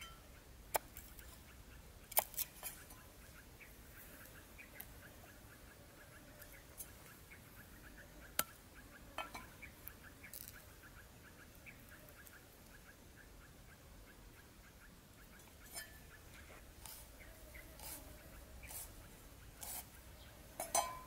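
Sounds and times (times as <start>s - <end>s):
steady chirping: 0.0s - 21.0s
small scrapes: 15.6s - 20.0s.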